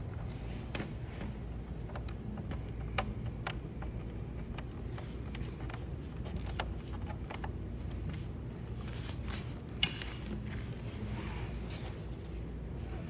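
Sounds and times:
steady low hum: 0.0s - 13.0s
plastic parts clicking and tapping: 0.2s - 8.2s.

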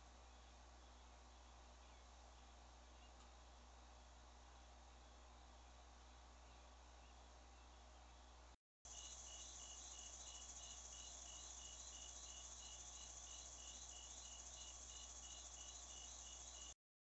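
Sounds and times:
low steady hum: 0.0s - 16.8s
crickets chirping: 8.9s - 16.8s
high-pitched insect trill: 8.9s - 16.8s.

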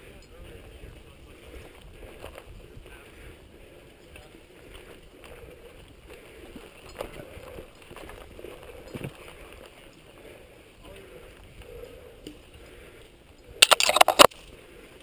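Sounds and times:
bike tyres on dirt trail: 0.0s - 15.0s
wind on microphone: 0.1s - 3.5s.

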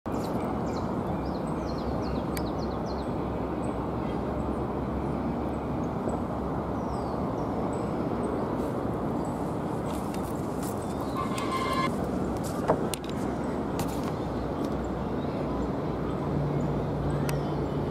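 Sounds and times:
city traffic rumble: 0.1s - 17.9s
small birds chirping: 6.8s - 12.4s.

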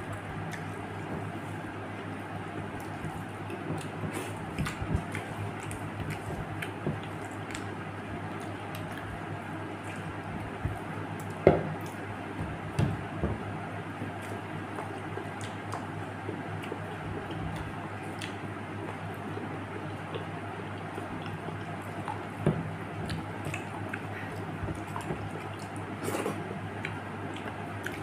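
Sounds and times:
wet chewing: 2.8s - 9.2s, 14.2s - 18.4s, 23.0s - 28.0s.

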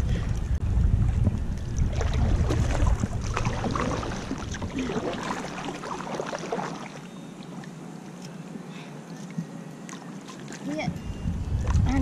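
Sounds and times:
wind buffeting microphone: 0.0s - 5.3s, 10.6s - 12.0s
kayak paddle splashing water: 1.6s - 7.1s.

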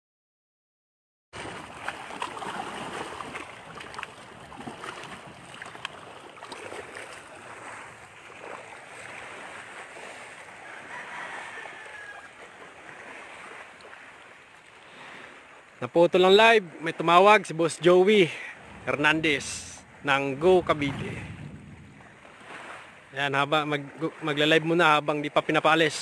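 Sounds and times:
rushing outdoor noise: 17.4s - 23.3s
faint falling tone: 18.5s - 21.9s.

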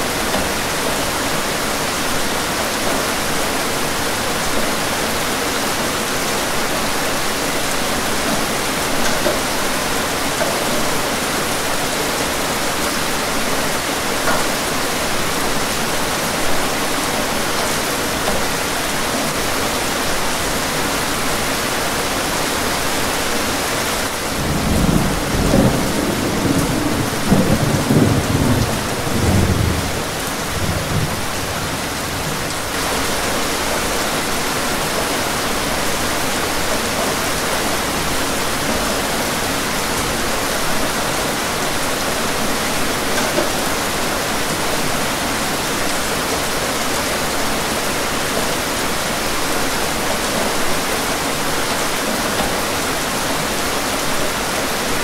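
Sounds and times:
steady rain falling: 0.0s - 55.0s
rolling thunder rumble: 24.3s - 32.4s.

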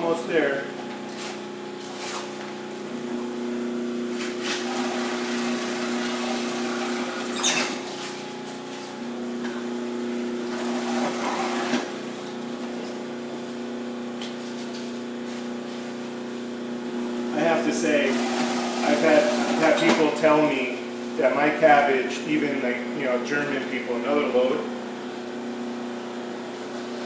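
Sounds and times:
food processor motor hum: 3.0s - 7.4s, 9.8s - 12.8s, 17.8s - 19.8s.

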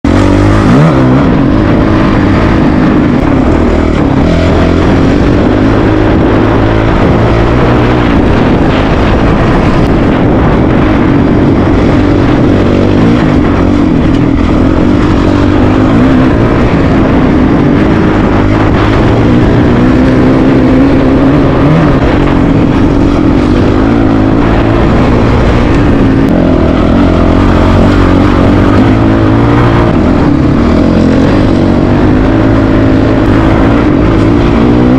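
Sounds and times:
motorcycle engine running: 0.0s - 34.9s
steady rush of noise: 0.0s - 34.9s.

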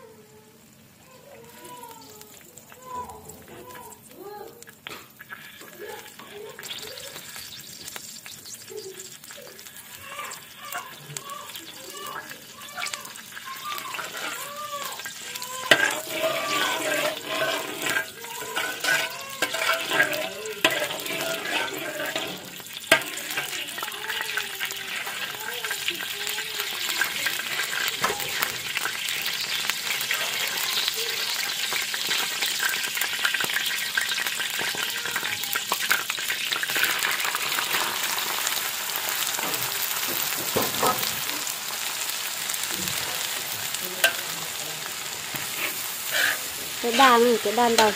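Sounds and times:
oil sizzling in a wok: 0.0s - 47.9s
metal spatula scraping a pan: 4.6s - 30.1s, 30.8s - 38.1s, 43.2s - 47.9s.

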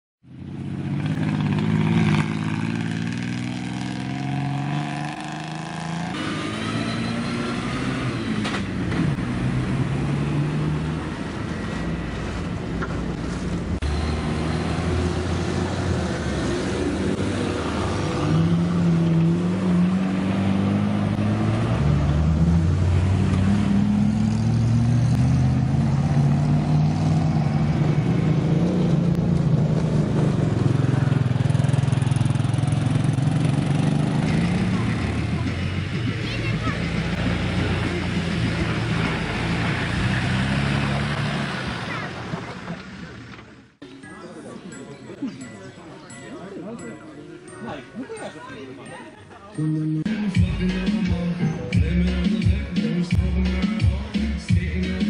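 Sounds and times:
off-road vehicle engines revving: 0.3s - 43.8s.

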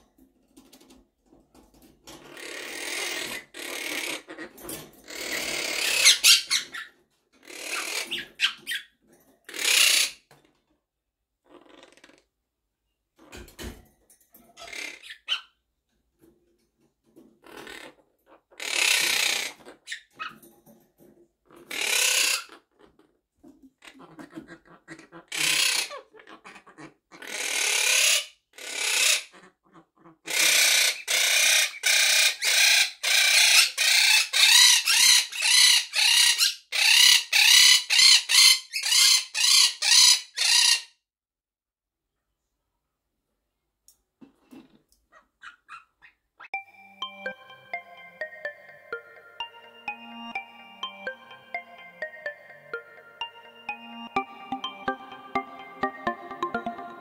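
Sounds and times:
parrot squawking: 2.2s - 8.9s, 9.5s - 10.3s, 14.6s - 15.6s, 17.4s - 20.4s, 21.5s - 23.0s, 23.7s - 40.9s, 45.1s - 46.6s
parrot shrill calls: 5.1s - 8.9s, 9.5s - 10.2s, 14.6s - 15.6s, 18.6s - 20.4s, 21.7s - 22.5s, 25.2s - 26.2s, 27.2s - 29.3s, 30.3s - 40.9s.

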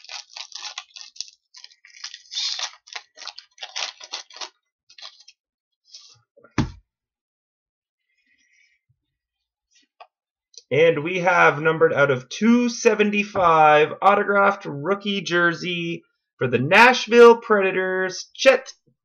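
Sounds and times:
wrapper crinkling: 0.0s - 5.4s
sharp thump: 6.6s - 6.8s.

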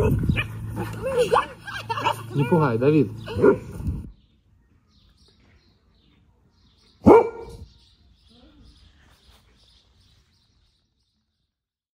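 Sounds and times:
dog bark: 3.3s - 3.7s, 7.0s - 7.7s.

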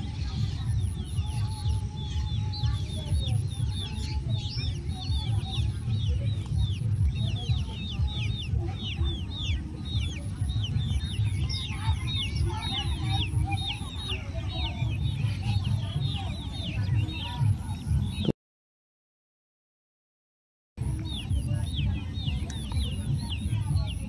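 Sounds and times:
steady low rumble: 0.0s - 18.3s
birds chirping: 0.0s - 18.4s, 20.8s - 24.0s.

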